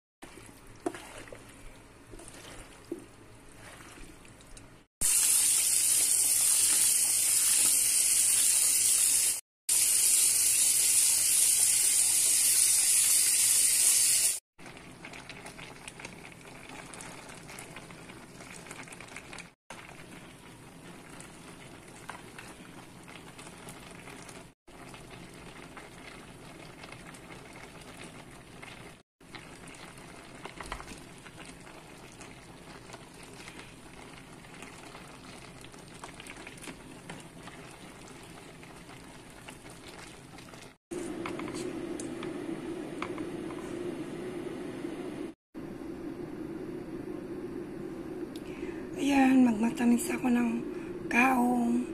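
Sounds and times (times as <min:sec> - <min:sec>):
fruit boiling in a pot: 0:00.2 - 0:07.7, 0:14.6 - 0:51.8.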